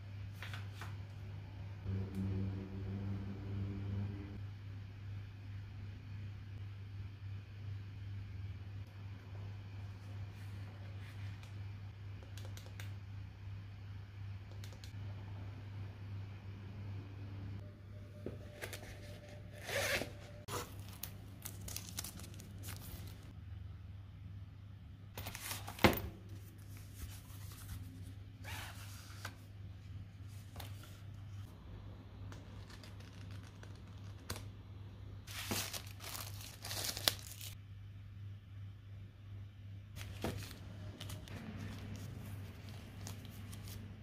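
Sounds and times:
steady low hum: 1.0 - 12.3
paper rustling and crinkling: 20.5 - 23.3, 25.2 - 29.4, 35.3 - 37.6, 40.0 - 44.0.

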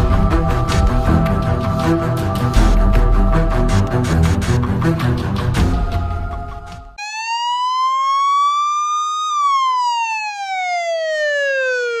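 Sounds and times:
music: 0.0 - 7.0
police siren wailing: 7.0 - 12.0.

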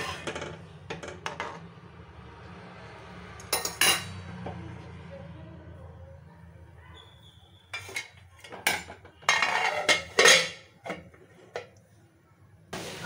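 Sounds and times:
metal cookware clattering: 0.0 - 1.7, 3.4 - 4.5, 7.7 - 11.8.

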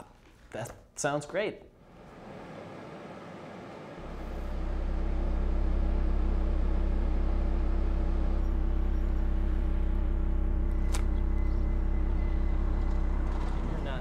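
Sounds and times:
car driving rumble: 4.0 - 14.0.

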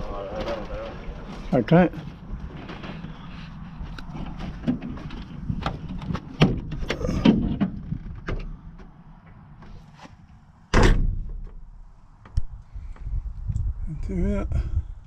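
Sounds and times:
loud sudden thump: 10.7 - 11.4.

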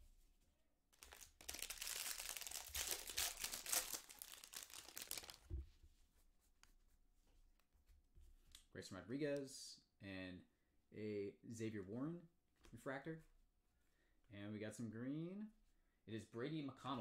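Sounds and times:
foil wrapper tearing and crinkling: 1.0 - 5.5.

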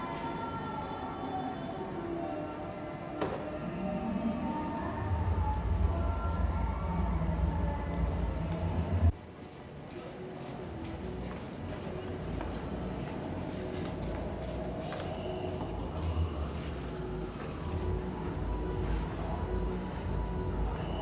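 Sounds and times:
crickets chirping: 0.0 - 21.0
low rumble: 4.2 - 9.1.

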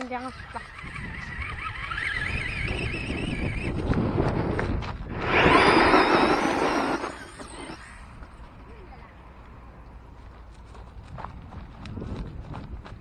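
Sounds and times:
electric motor whining: 0.0 - 8.2.

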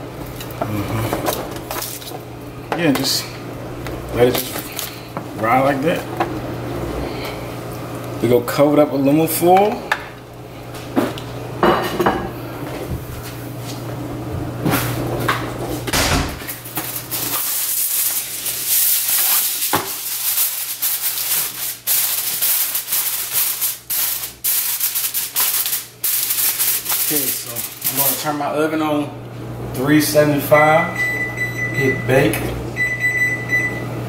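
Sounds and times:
aluminum foil crackling: 1.3 - 2.2, 4.1 - 5.1, 16.5 - 28.3.

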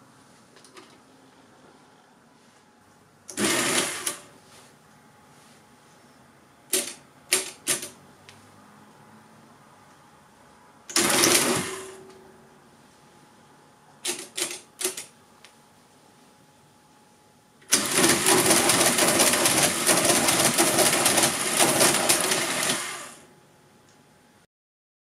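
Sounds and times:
calculator gears clattering: 17.7 - 22.8.

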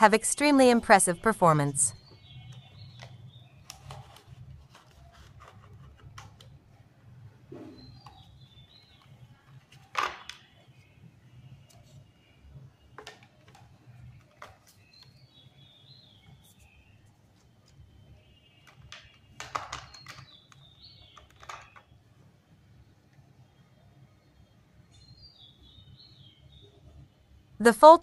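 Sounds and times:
plastic packaging clicks: 18.6 - 21.9.

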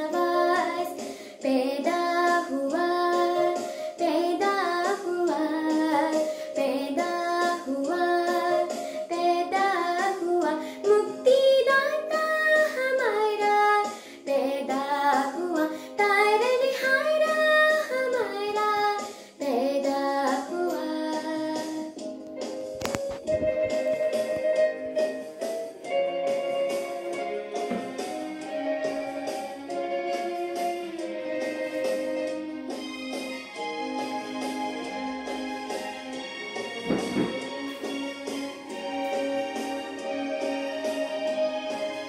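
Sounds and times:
girl singing a carol: 0.0 - 22.0.

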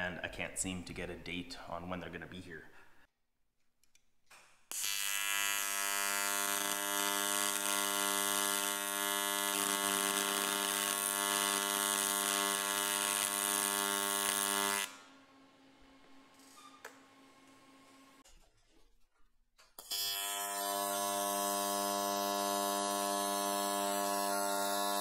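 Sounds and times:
welding arc buzzing: 4.7 - 15.2, 19.8 - 25.0.

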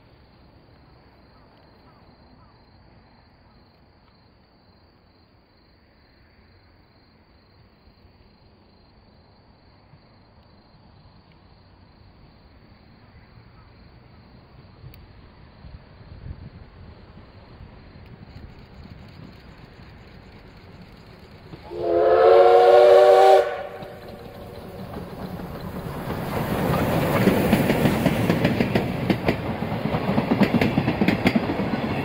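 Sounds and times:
insects chirping: 0.0 - 32.0
distant steam train rumble: 5.6 - 32.0.

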